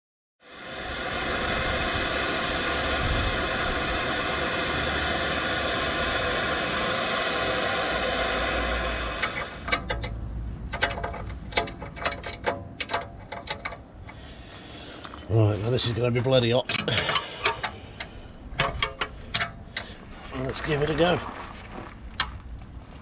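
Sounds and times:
gas torch hissing: 0:00.4 - 0:09.8, 0:13.9 - 0:21.2
spanner clinking on metal: 0:09.6 - 0:14.2, 0:15.0 - 0:15.3, 0:16.7 - 0:20.0.

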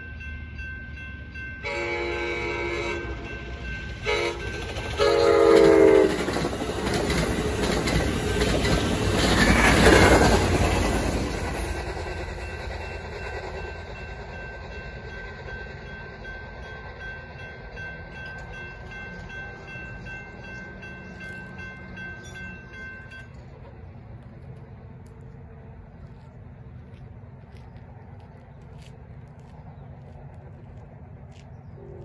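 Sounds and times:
railroad crossing bell ringing: 0:00.0 - 0:09.3, 0:10.2 - 0:23.8
train rumbling past: 0:00.0 - 0:32.0
train horn blasts: 0:01.6 - 0:06.3.

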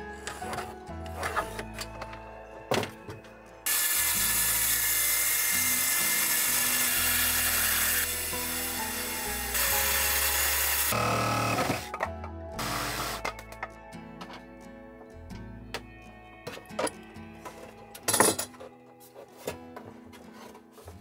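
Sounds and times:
background music: 0:00.0 - 0:21.0
circular saw cutting wood: 0:03.7 - 0:11.9
power tool whining: 0:03.7 - 0:11.9.

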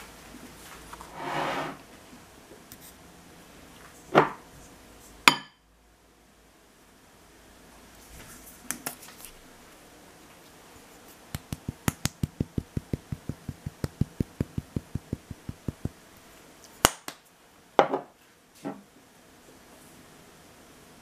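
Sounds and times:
short scrape: 0:01.1 - 0:01.8
spice shaker ticking: 0:11.3 - 0:16.0.

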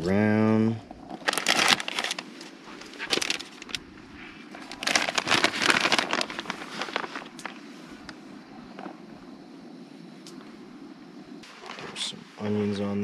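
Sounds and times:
plastic bag crinkling: 0:01.1 - 0:03.8, 0:04.6 - 0:07.6.

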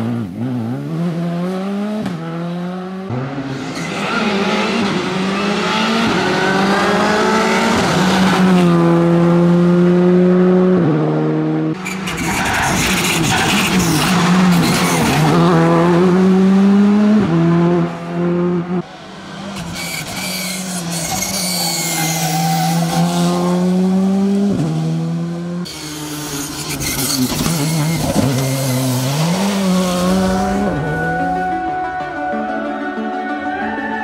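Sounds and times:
rally car engines at full throttle: 0:00.0 - 0:33.4.

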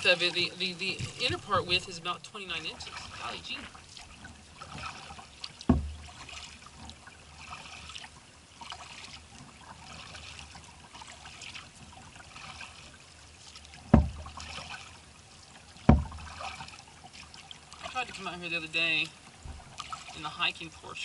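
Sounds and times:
water trickling from paddle strokes: 0:00.0 - 0:21.0
sharp knocks: 0:05.7 - 0:06.2, 0:13.9 - 0:14.4, 0:15.9 - 0:16.3.

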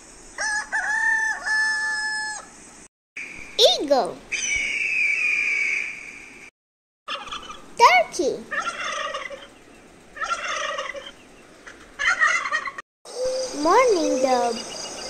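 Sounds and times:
high bird cry: 0:04.3 - 0:06.4, 0:08.5 - 0:15.0
turkeys gobbling: 0:07.1 - 0:07.6, 0:08.5 - 0:09.6, 0:10.2 - 0:12.8.

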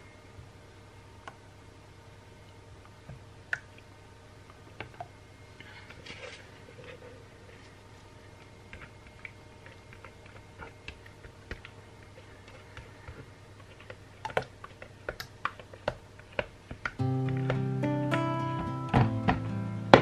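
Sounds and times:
background music: 0:17.0 - 0:20.0.

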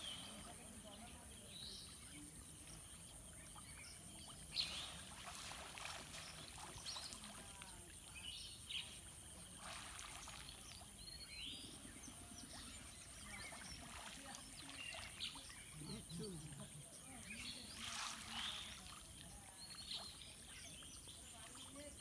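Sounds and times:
birds chirping: 0:00.0 - 0:22.0
water dripping and splashing: 0:04.2 - 0:08.1, 0:09.3 - 0:11.0, 0:12.5 - 0:16.7, 0:17.4 - 0:19.5.

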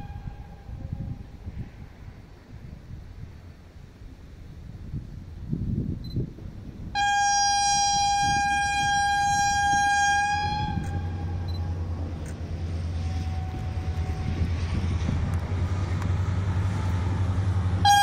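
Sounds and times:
locomotive horn blast: 0:00.0 - 0:01.0, 0:06.9 - 0:18.0
locomotive engine drone: 0:06.4 - 0:18.0.

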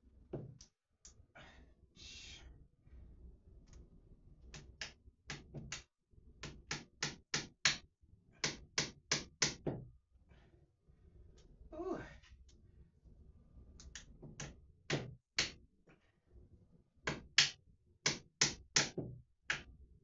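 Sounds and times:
hammer tapping on wall: 0:04.6 - 0:07.8, 0:08.4 - 0:09.9, 0:14.0 - 0:15.6, 0:17.1 - 0:19.7.

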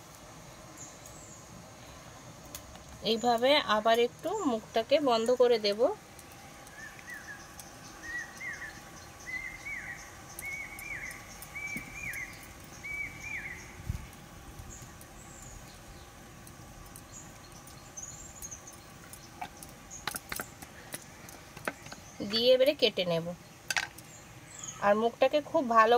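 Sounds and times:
bird chirping: 0:06.6 - 0:25.1.

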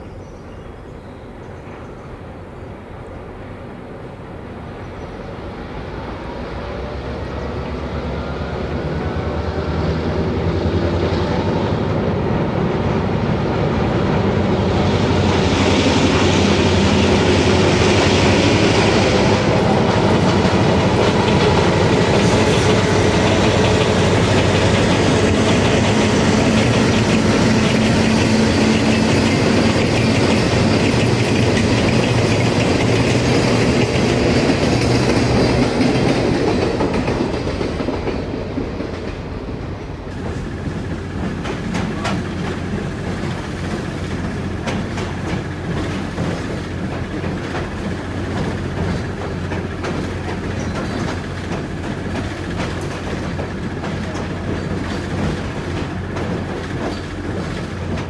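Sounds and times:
diesel locomotive engine: 0:00.0 - 0:58.0
wheels clacking on track: 0:13.9 - 0:58.0.

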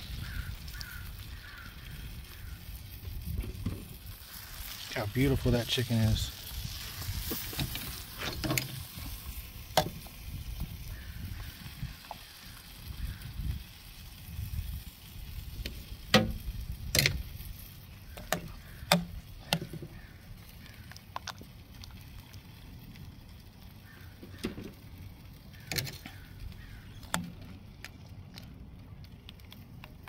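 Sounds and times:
metal tongs clanking on grill: 0:07.3 - 0:09.1, 0:16.1 - 0:17.2.

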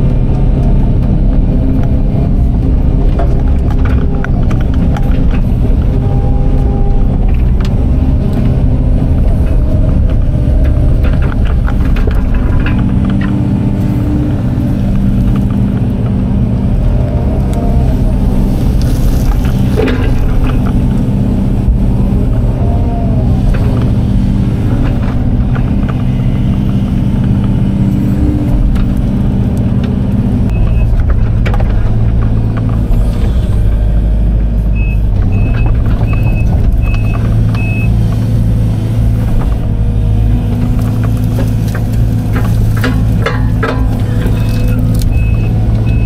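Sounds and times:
excavator diesel engine running: 0:00.0 - 0:46.0.

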